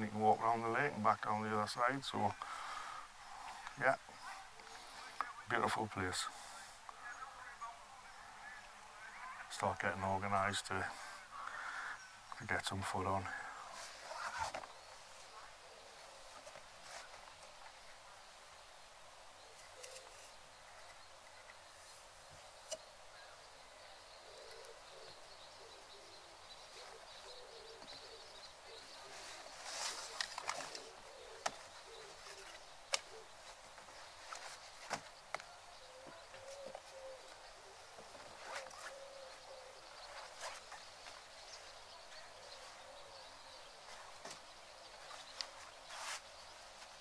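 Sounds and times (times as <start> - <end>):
faint outdoor ambience: 0.0 - 47.0
low hooting bird call: 22.7 - 34.5, 35.3 - 46.2.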